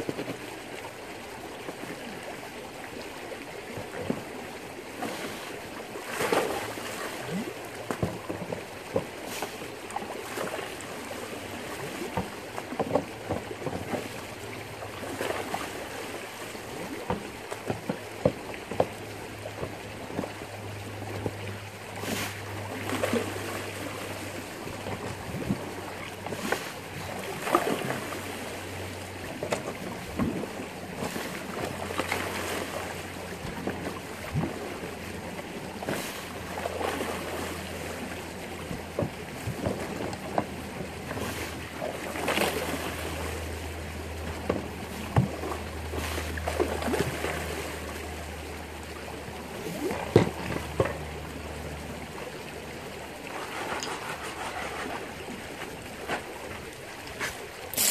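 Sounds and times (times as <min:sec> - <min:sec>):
pump humming: 0:00.0 - 0:57.9
water and gravel gushing: 0:53.1 - 0:57.9.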